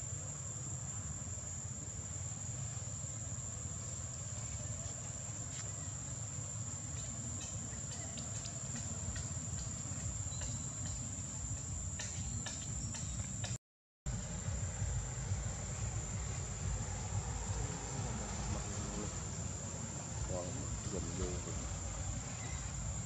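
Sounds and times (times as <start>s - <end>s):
insects chirring: 0.0s - 23.0s
low rumble: 14.1s - 23.0s.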